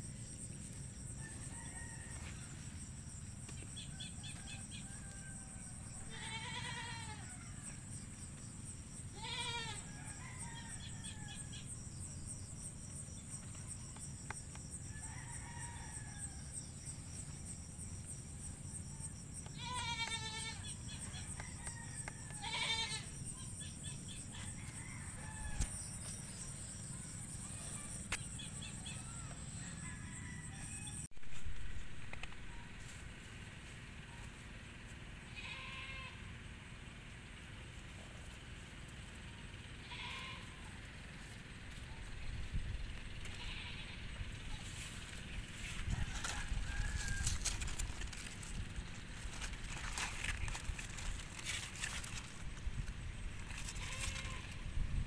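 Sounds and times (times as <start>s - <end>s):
insects droning: 0.0s - 55.0s
roosters crowing: 0.9s - 8.2s, 8.8s - 11.8s, 14.6s - 16.9s, 19.1s - 34.1s, 42.9s - 55.0s.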